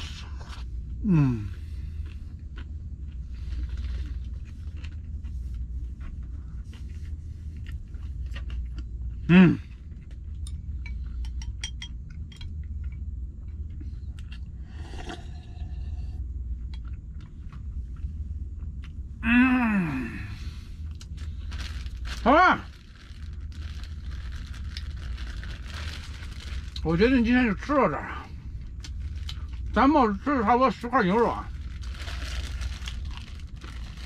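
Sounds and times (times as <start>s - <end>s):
low hum: 0.0s - 34.0s
person mumbling: 1.0s - 1.6s, 9.3s - 9.7s, 19.2s - 20.4s
person humming: 19.2s - 20.3s.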